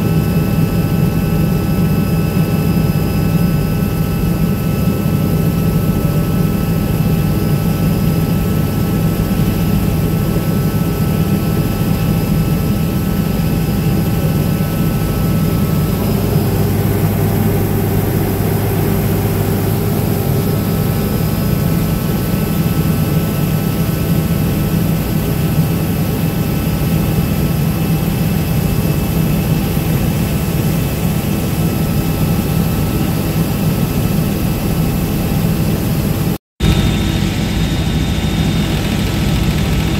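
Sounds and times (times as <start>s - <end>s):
helicopter engine and rotor drone: 0.0s - 39.9s.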